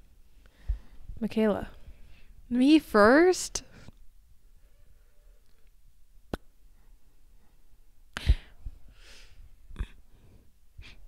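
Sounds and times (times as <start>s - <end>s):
soft breath: 0.3s - 2.5s, 6.6s - 11.0s.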